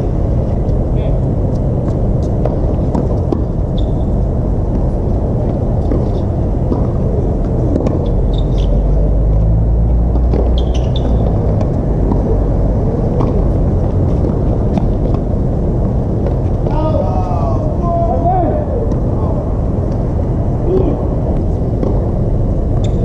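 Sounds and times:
steady low rumble: 0.0 - 23.0
racket hitting tennis ball: 2.2 - 3.5, 13.0 - 15.3
shoe squeaks: 3.6 - 4.2, 8.0 - 9.0, 10.4 - 11.6, 22.8 - 23.0.

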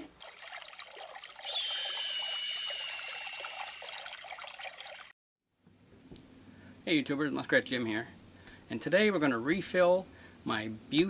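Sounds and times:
hissing trickling liquid: 0.0 - 5.1
high whistling tone: 1.4 - 4.2.

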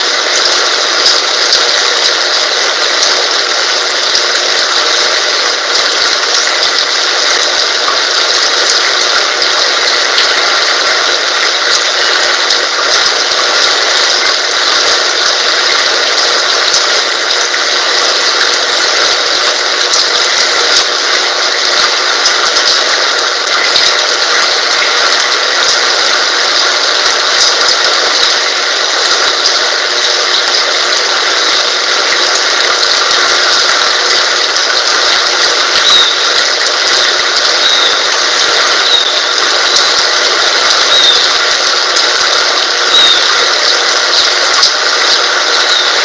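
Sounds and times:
rain hissing: 0.0 - 46.0.

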